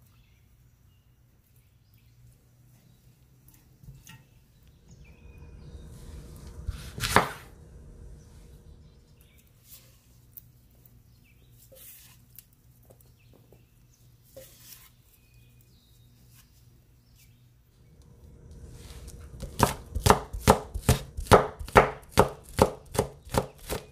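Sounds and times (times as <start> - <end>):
knife chopping on wooden board: 6.7 - 7.4, 19.4 - 23.9.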